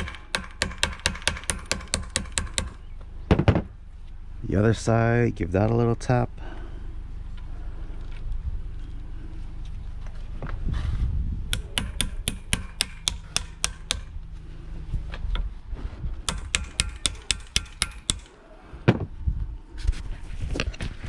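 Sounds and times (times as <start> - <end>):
hammer tapping metal: 11.5 - 14.1, 16.3 - 18.3.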